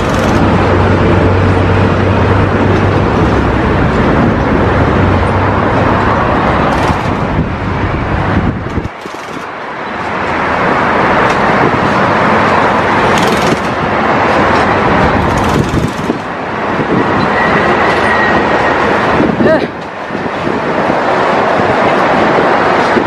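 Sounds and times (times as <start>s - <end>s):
loud machinery running: 0.0s - 22.8s.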